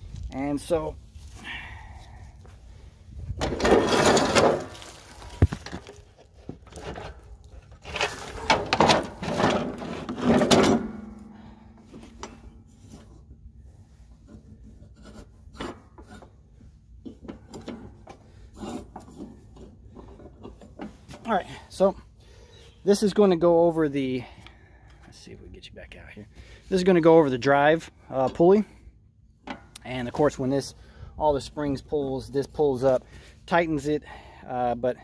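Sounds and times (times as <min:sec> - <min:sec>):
metal mower deck scraping: 0:03.4 - 0:06.0, 0:06.6 - 0:11.3.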